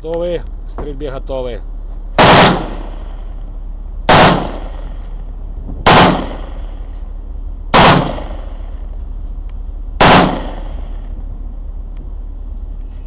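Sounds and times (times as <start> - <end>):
low hum: 0.0 - 13.0
rifle shots: 2.2 - 3.4, 4.1 - 5.2, 5.8 - 7.0, 7.7 - 8.9, 10.0 - 11.2.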